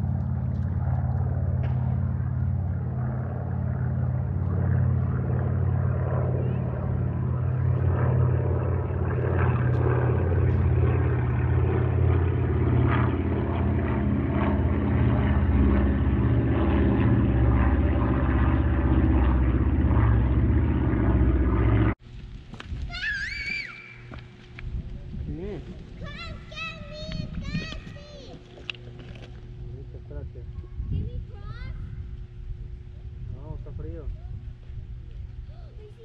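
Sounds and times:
engine drone: 0:00.0 - 0:22.7, 0:23.9 - 0:36.0.

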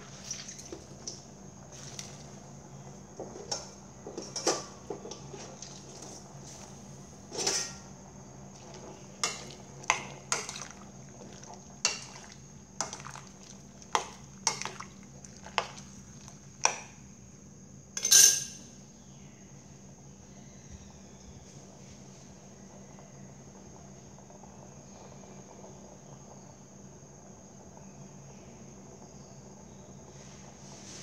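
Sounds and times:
metal spoon clinking on pot: 0:18.0 - 0:18.6.

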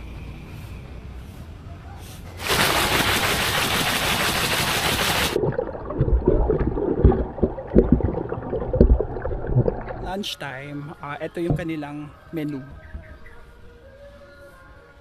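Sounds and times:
swimmer strokes thumping underwater: 0:02.4 - 0:10.2, 0:11.5 - 0:11.7
pool water splashing: 0:02.4 - 0:10.4
underwater bubbling and gurgling: 0:05.3 - 0:10.2.

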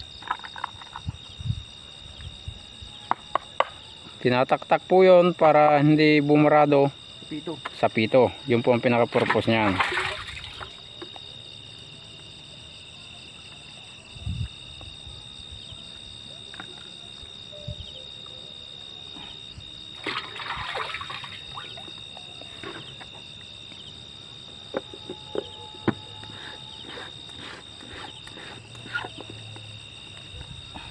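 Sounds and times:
liquid pouring into plastic tank: 0:09.2 - 0:10.7.

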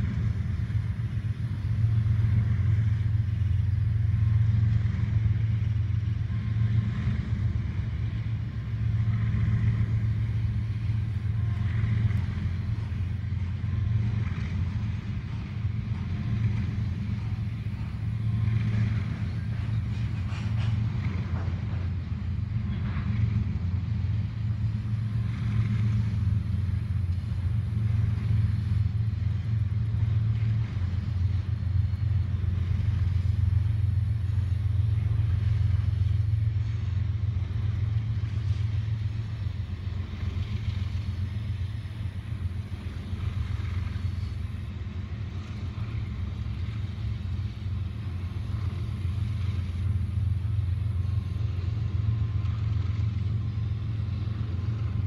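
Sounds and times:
freight train rumbling on rails: 0:00.0 - 0:55.0.

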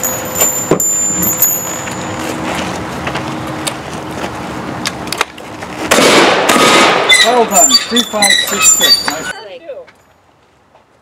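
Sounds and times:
background noise: 0:00.0 - 0:11.0.

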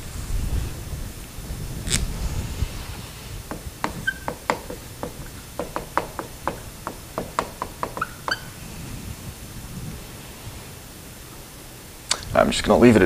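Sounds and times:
marker writing on whiteboard: 0:03.5 - 0:08.5.

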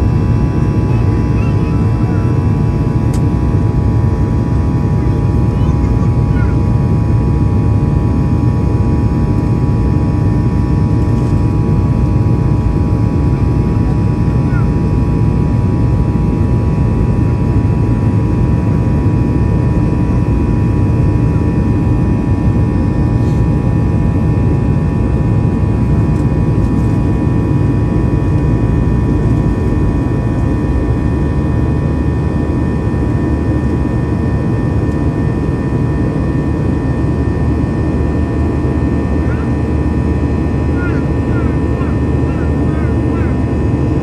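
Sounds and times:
jet engine rumble in cabin: 0:00.0 - 0:44.0.

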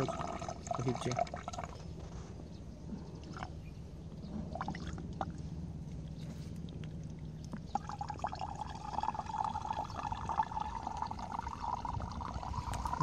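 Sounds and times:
water pouring and trickling: 0:00.0 - 0:01.9, 0:04.5 - 0:05.4, 0:06.0 - 0:13.0
steady low hum: 0:00.0 - 0:13.0.

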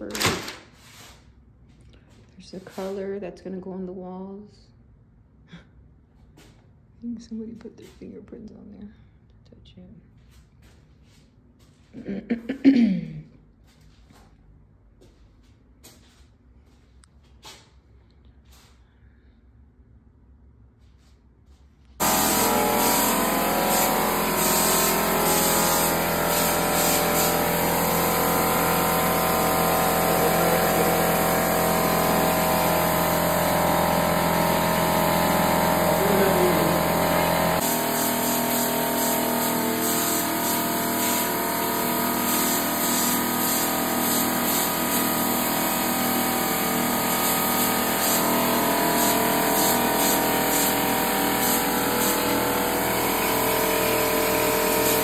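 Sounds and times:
air compressor motor whine: 0:22.0 - 0:55.0
spray gun air hiss: 0:22.0 - 0:55.0.

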